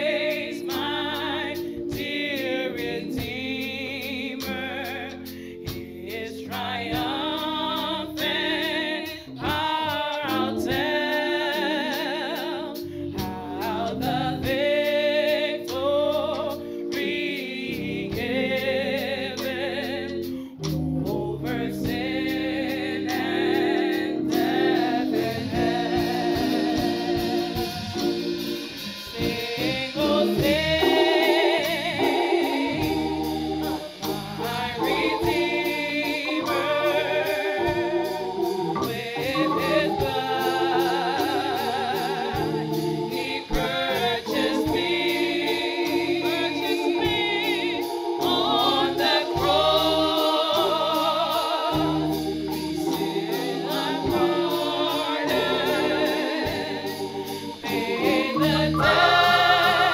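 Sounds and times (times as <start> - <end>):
keyboard: 0.0 - 59.9
woman singing with vibrato: 29.2 - 32.8, 38.8 - 45.3.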